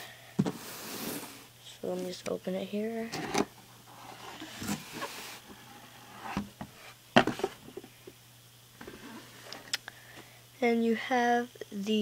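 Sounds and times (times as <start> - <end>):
cardboard scraping rustle: 3.1 - 7.8, 8.8 - 9.5.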